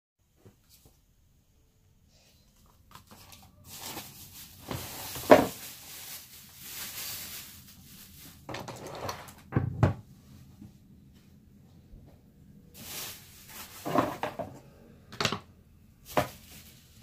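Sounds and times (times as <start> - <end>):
plastic wrapping crinkling: 2.6 - 9.4, 12.8 - 14.5, 16.0 - 17.0.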